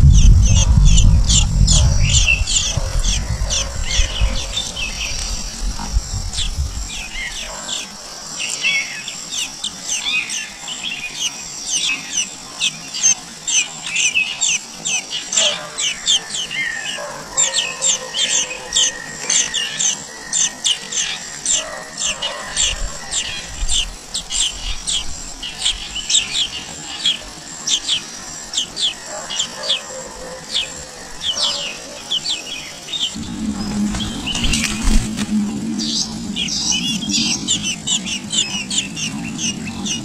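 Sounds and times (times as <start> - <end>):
low rumble: 0.0 - 7.5, 33.1 - 40.0
nestlings chirping: 0.0 - 40.0.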